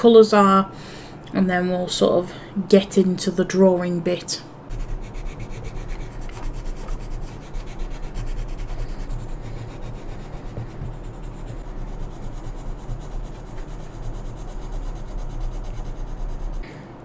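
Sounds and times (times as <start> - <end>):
coloured pencil rubbing on paper: 4.7 - 16.6.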